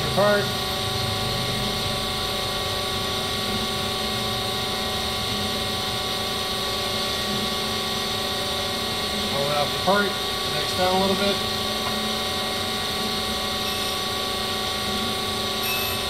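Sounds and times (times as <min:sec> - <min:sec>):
surface grinder whining: 0:06.7 - 0:16.0.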